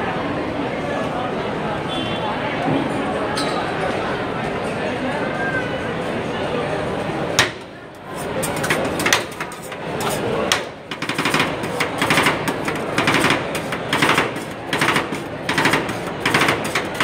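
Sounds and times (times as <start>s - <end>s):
metal spatulas chopping and scraping: 7.4s - 17.0s.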